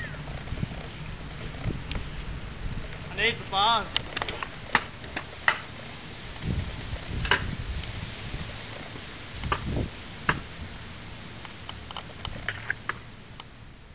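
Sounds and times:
skateboard wheels rolling on concrete: 0.0 - 13.9
skateboard clacks: 3.9 - 5.8.

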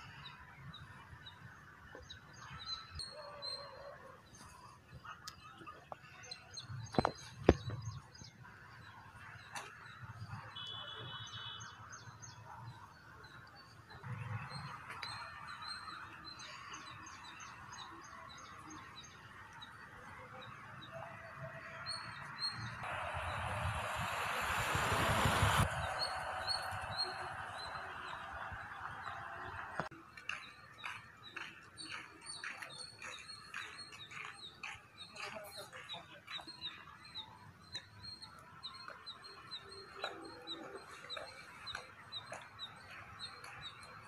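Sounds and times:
rushing noise: 22.7 - 29.9.

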